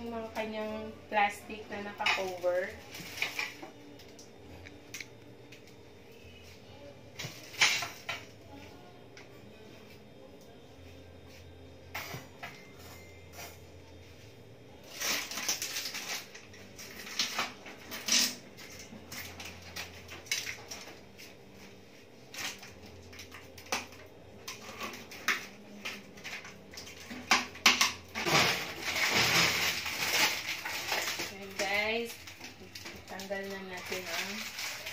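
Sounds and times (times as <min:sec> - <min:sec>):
low steady hum: 0:00.0 - 0:34.9
plastic film crackling: 0:14.8 - 0:21.0, 0:24.5 - 0:34.9.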